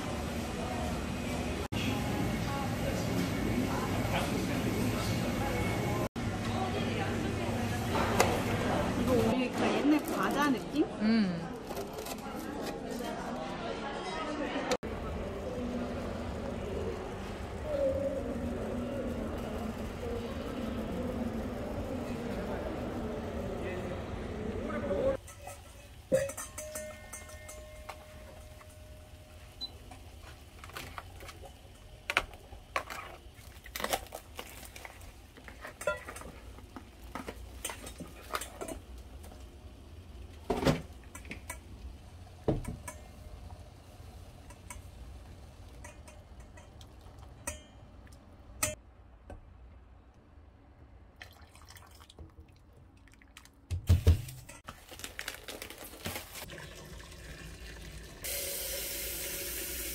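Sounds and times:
dishes and utensils clinking: 0:25.1 - 0:31.4, 0:35.4 - 0:39.0, 0:45.7 - 0:48.0.

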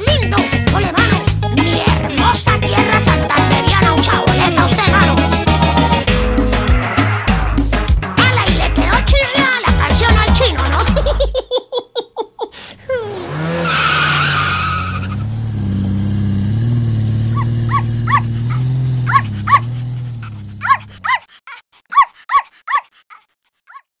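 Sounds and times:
engine with wavering pitch: 0:04.1 - 0:07.9, 0:12.9 - 0:21.0
tyre screech: 0:06.4 - 0:08.3, 0:12.8 - 0:21.2
dog yapping: 0:17.3 - 0:23.9.

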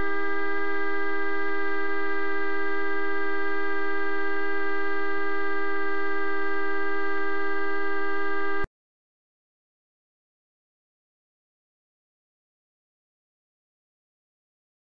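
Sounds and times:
coach horn sounding steadily: 0:00.0 - 0:08.7.

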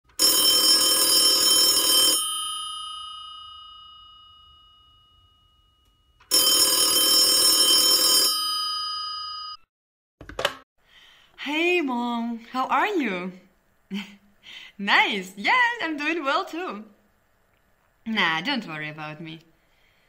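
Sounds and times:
old-style telephone bell ringing: 0:00.2 - 0:09.7.

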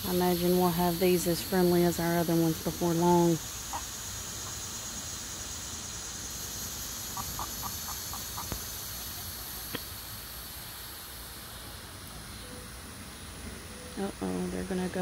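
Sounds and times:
steady hiss: 0:00.0 - 0:15.0
young chickens clucking: 0:03.7 - 0:04.7, 0:07.1 - 0:09.9.

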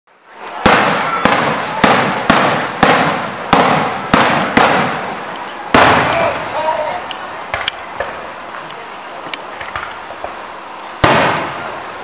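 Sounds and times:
crackling hiss of fireworks: 0:00.1 - 0:12.0
fireworks bangs: 0:00.3 - 0:12.0.

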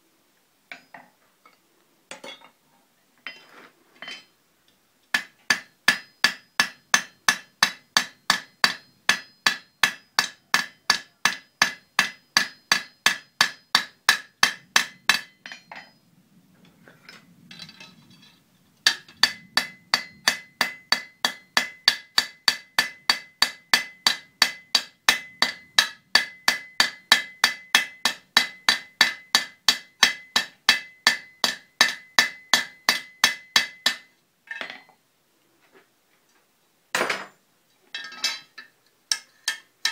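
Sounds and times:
hammer striking metal on anvil: 0:05.2 - 0:16.0, 0:18.8 - 0:34.9.

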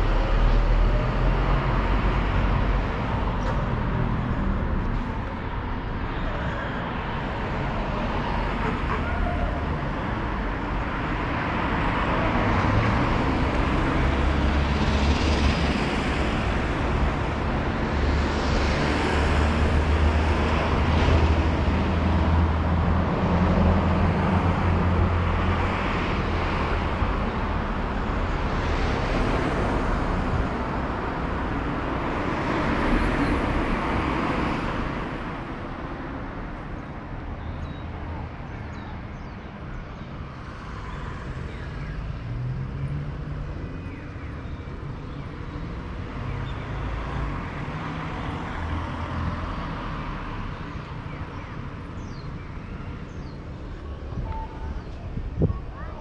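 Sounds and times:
cars passing by: 0:00.0 - 0:56.0
low rumble of engines and tyres: 0:00.0 - 0:56.0.

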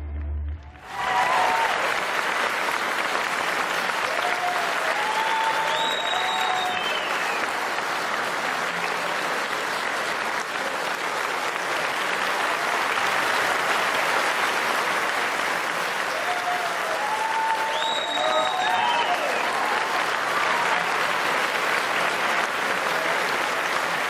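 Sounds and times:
audience applauding: 0:00.0 - 0:24.0
crowd shouting: 0:00.8 - 0:01.9.

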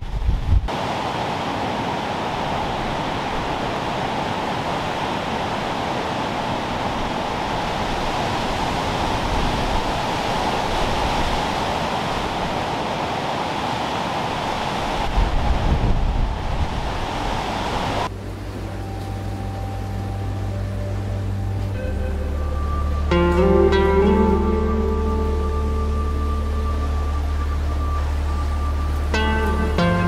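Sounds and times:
wind buffeting microphone: 0:00.0 - 0:00.7, 0:02.0 - 0:18.2
heavy rain over floodwater: 0:00.7 - 0:19.2.

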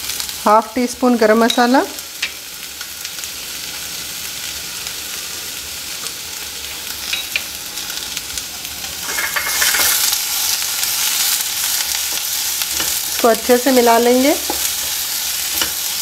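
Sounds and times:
vegetables sizzling in oil: 0:00.0 - 0:16.0
spatula stirring and scraping pan: 0:09.0 - 0:13.4, 0:14.2 - 0:16.0.

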